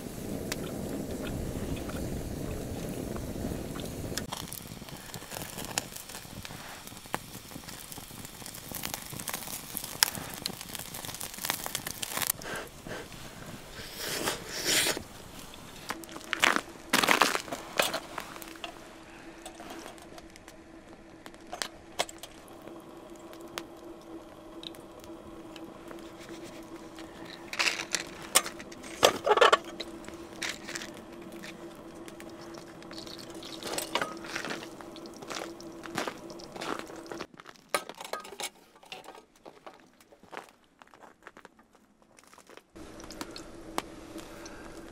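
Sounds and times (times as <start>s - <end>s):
steady low hum: 0.0s - 37.3s, 42.8s - 44.9s
lantern metal and glass clanks: 27.5s - 30.7s, 37.7s - 39.3s.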